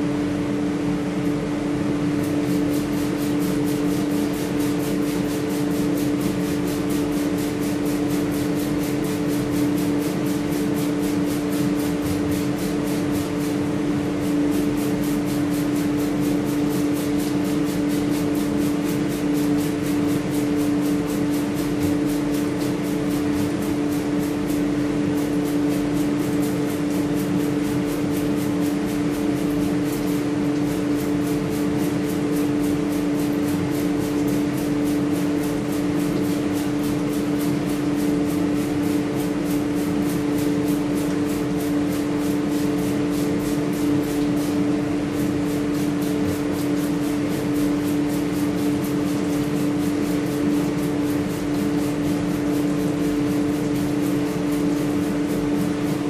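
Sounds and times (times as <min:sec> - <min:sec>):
motor or fan humming: 0:00.0 - 0:56.0.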